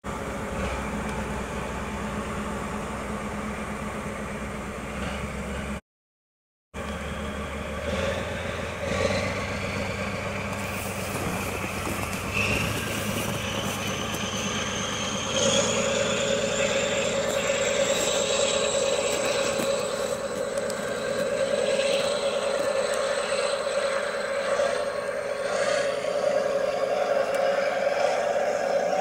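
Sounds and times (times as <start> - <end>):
diesel locomotive engine whine: 0.0 - 5.8, 6.8 - 29.0
hiss of snow thrown aside: 10.6 - 14.8.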